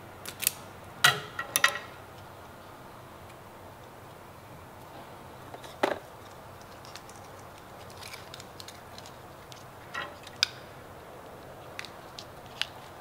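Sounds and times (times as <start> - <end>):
hand tools clicking and clattering: 9.8 - 10.6.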